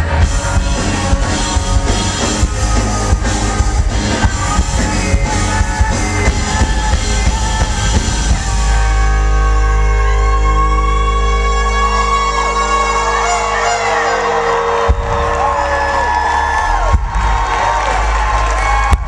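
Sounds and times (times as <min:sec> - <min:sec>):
drum kit: 0:00.0 - 0:11.1, 0:12.4 - 0:19.0
person singing: 0:00.0 - 0:16.0
electric guitars: 0:00.0 - 0:19.0
live rock band playing: 0:00.0 - 0:19.0.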